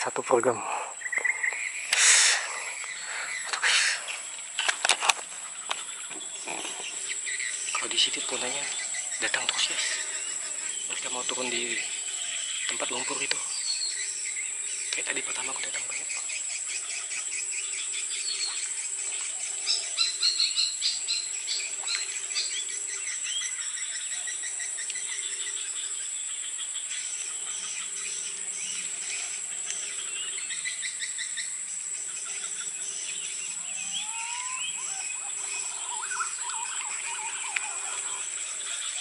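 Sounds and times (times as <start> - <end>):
rapid chirping calls: 0.0 - 4.6, 5.3 - 39.0
high-pitched insect drone: 0.0 - 39.0
rising bird whistles: 33.8 - 35.3.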